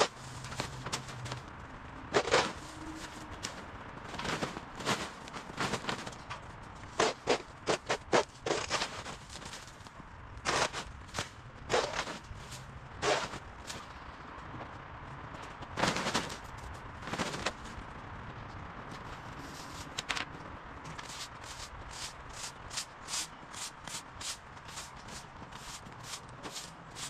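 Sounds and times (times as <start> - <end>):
push broom sweeping concrete: 21.0 - 27.0.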